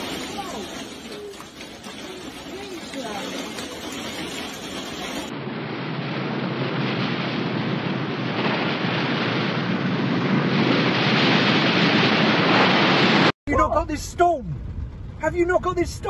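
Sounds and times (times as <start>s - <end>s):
heavy rain: 0.0s - 5.3s, 6.0s - 13.4s
storm wind: 0.0s - 16.0s.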